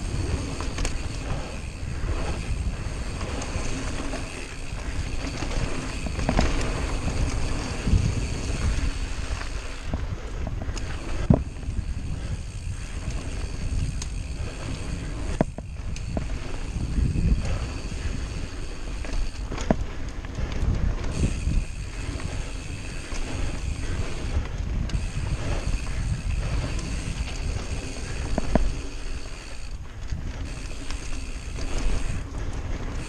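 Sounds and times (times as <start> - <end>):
bike clacking on bumps: 0.0 - 33.0
tyres rolling over dirt: 0.0 - 33.0
wind buffeting microphone: 0.0 - 33.0.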